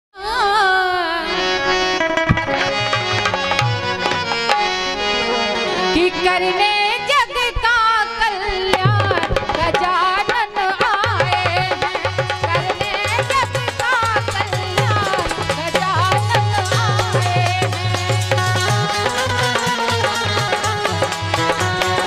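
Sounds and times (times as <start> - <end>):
woman singing: 0.2 - 1.7, 5.9 - 22.0
harmonium: 0.2 - 22.0
hand drums: 2.2 - 4.8, 8.7 - 22.0.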